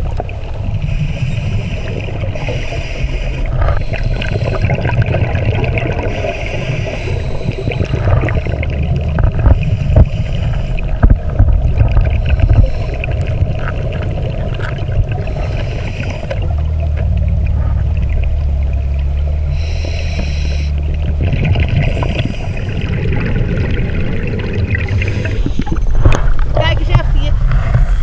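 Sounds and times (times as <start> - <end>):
underwater low rumble: 0.0 - 28.0
bubbly bursts: 3.4 - 10.1, 20.8 - 26.4.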